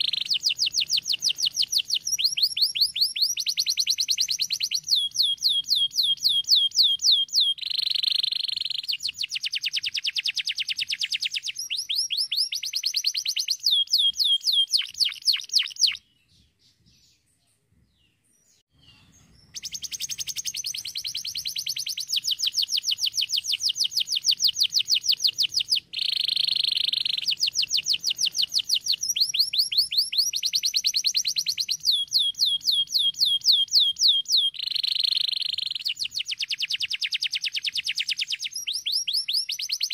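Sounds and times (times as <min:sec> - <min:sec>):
canary singing trills: 0:00.0 - 0:17.4, 0:18.0 - 0:39.9.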